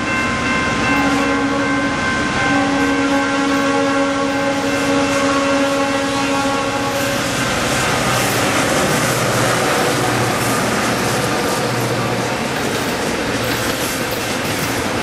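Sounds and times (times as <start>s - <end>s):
wheels on rail: 0.0s - 15.0s
locomotive horn chord: 0.9s - 8.9s
rumble of diesel engines: 5.2s - 15.0s.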